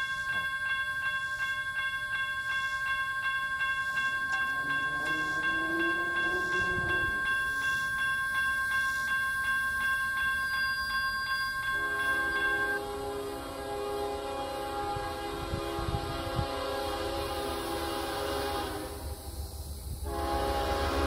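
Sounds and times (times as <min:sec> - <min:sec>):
railroad crossing bell ringing: 0:00.0 - 0:15.0.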